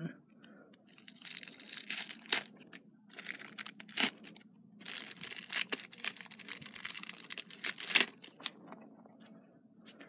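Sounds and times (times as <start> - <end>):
plastic wrap crinkling and tearing: 0.8 - 8.6.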